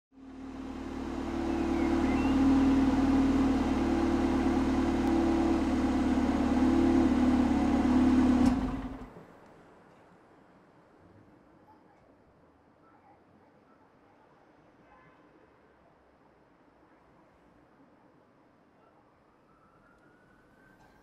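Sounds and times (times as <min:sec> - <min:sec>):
car engine idling: 0:00.2 - 0:09.2.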